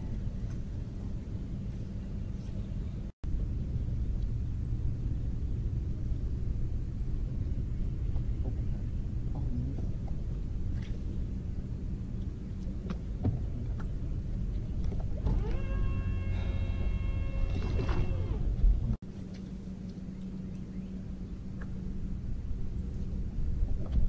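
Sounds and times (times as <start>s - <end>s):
steady low rumble: 0.0s - 24.0s
electric trolling motor whining: 15.2s - 18.8s.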